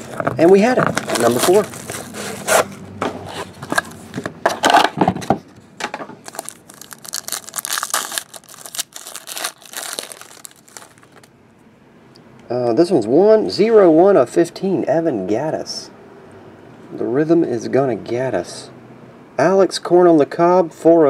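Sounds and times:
foil wrapper crinkling: 0.0s - 2.6s, 6.2s - 11.3s
cardboard rustling and tearing: 0.8s - 2.8s, 6.3s - 11.3s.

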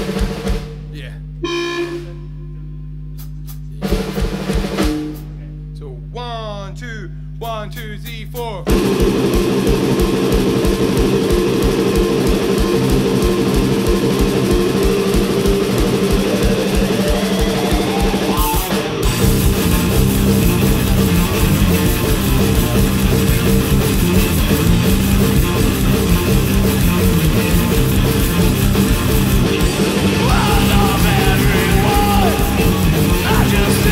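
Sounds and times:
drum kit: 0.0s - 2.2s, 3.0s - 5.8s, 8.1s - 33.9s
electric guitar: 8.7s - 33.9s.

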